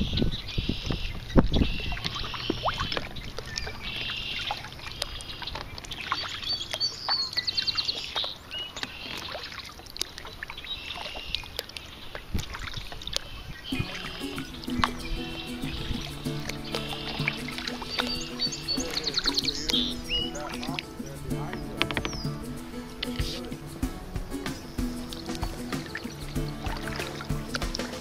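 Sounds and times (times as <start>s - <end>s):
blackbirds calling and singing: 0.0s - 28.0s
kayak paddle splashes: 1.6s - 28.0s
background music: 13.7s - 28.0s.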